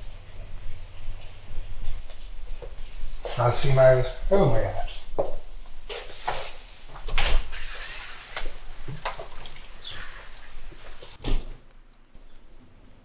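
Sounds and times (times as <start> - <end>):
footsteps: 0.0 - 3.8, 4.8 - 7.7
door shutting with a thud: 11.2 - 11.6.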